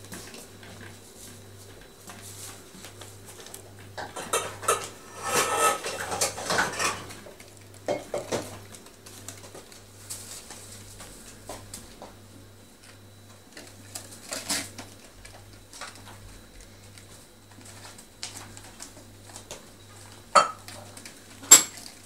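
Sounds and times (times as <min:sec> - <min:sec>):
metal bowls clinking and clattering: 0:04.0 - 0:07.2, 0:20.4 - 0:20.9.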